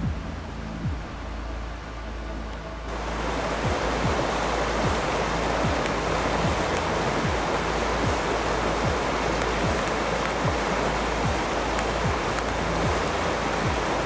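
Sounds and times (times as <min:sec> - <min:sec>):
background music with kick drum: 0:00.0 - 0:01.5, 0:02.8 - 0:14.0
stream rushing over rocks: 0:02.9 - 0:14.0.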